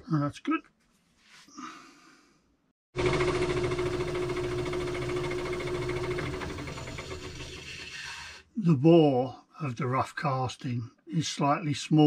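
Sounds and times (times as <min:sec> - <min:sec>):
lathe motor hum: 0:03.0 - 0:07.9.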